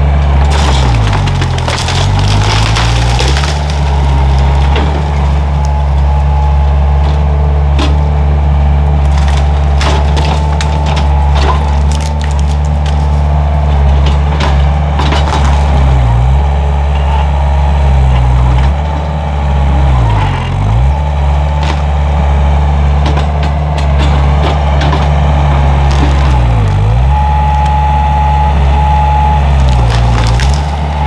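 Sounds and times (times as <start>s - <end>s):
wood cracking and splintering: 0.0s - 8.2s, 8.9s - 16.5s, 22.9s - 27.6s, 29.4s - 31.0s
diesel engine running hard: 0.0s - 31.0s
beeping: 27.0s - 29.8s.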